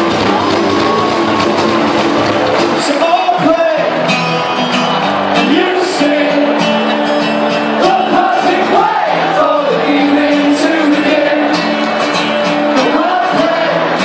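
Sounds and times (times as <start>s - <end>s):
large outdoor crowd: 0.0s - 14.0s
live rock band playing: 0.0s - 14.0s
person singing: 5.4s - 6.9s, 7.8s - 11.9s, 12.7s - 14.0s.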